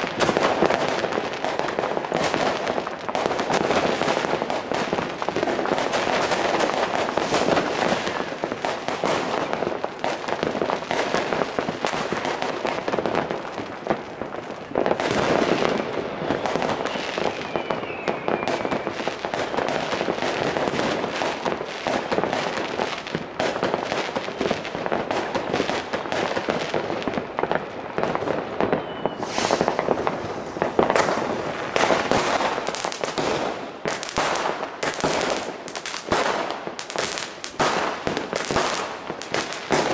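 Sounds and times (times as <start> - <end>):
fireworks bangs and crackle: 0.0 - 39.9
rising firework whistle: 15.0 - 19.8, 28.0 - 33.4.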